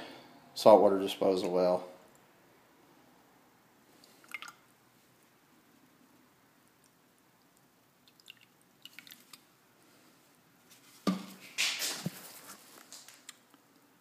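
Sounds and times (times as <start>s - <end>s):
rustling and scraping: 10.0s - 13.3s.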